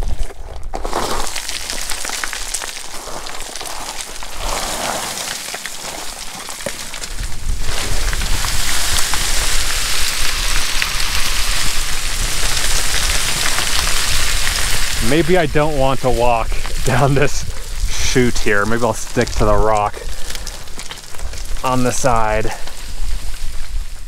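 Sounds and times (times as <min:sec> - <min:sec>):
scree crunching underfoot: 0:00.0 - 0:24.0
wind buffeting microphone: 0:07.0 - 0:24.0.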